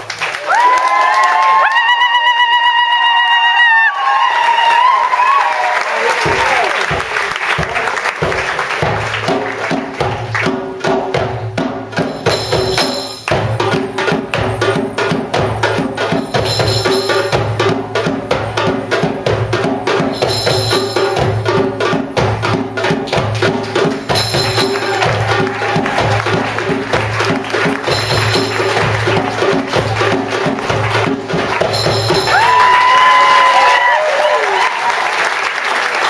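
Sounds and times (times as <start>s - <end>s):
hand drums fast rhythm: 6.2s - 33.4s
bright jingling: 14.4s - 17.6s, 20.2s - 21.4s, 31.7s - 32.3s.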